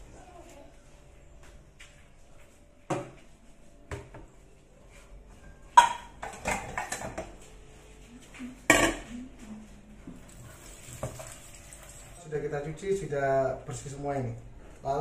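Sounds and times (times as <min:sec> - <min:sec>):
dishes clattering in sink: 0:05.8 - 0:07.4, 0:10.8 - 0:12.1.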